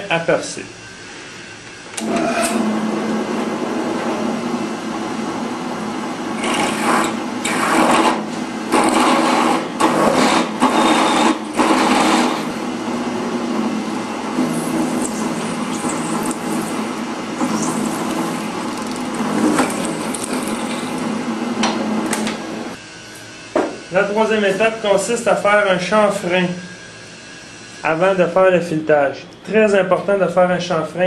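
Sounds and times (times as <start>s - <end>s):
drill press motor running: 1.8s - 22.8s
drill cutting into metal: 6.4s - 12.6s, 14.3s - 21.2s.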